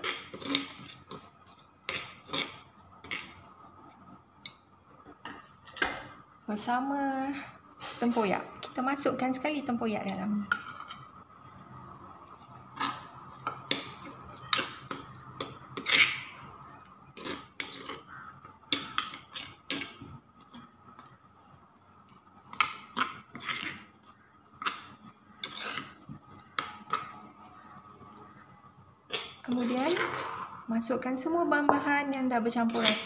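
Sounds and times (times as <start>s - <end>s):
spoon scraping stone mortar: 0.0s - 3.4s, 12.4s - 20.6s, 22.5s - 27.2s, 29.1s - 30.6s, 32.5s - 33.0s
faint steady hum: 0.0s - 33.0s
scrapes against ceramic plate: 23.0s - 23.9s.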